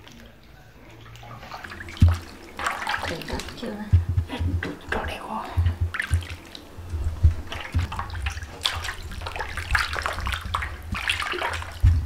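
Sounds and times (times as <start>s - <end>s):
hand splashing through buttermilk: 1.2s - 3.7s, 7.4s - 12.0s.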